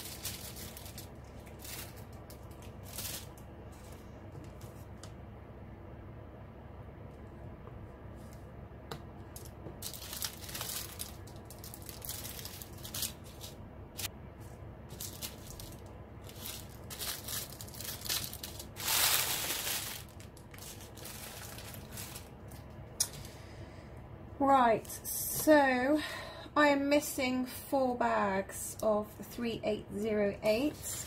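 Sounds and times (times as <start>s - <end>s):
plastic bags crinkling: 0.0s - 4.0s, 9.3s - 14.1s, 14.9s - 22.8s.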